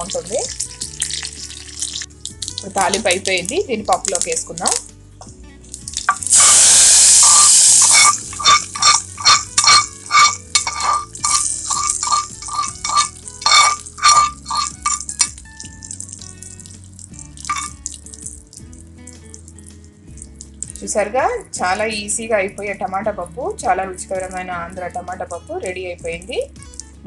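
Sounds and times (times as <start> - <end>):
hot oil sizzling: 0.0 - 22.2, 24.7 - 27.0.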